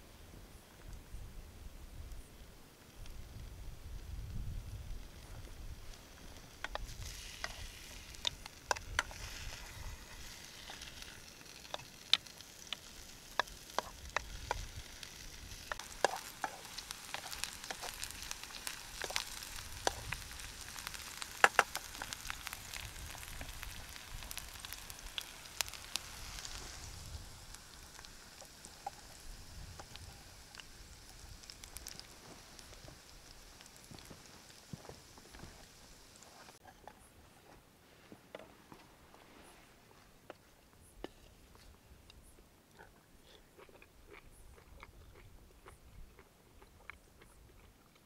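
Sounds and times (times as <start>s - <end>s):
sharp pops and crackles: 2.1s - 37.2s
food sizzling in a frying pan: 4.3s - 36.6s
wooden utensil stirring: 15.6s - 20.0s.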